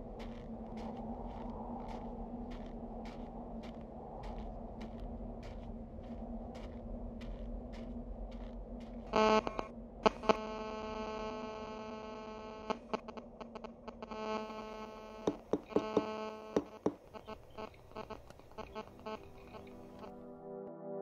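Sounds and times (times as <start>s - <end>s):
low steady hum: 0.0s - 20.2s
harsh electronic buzz: 9.1s - 20.1s.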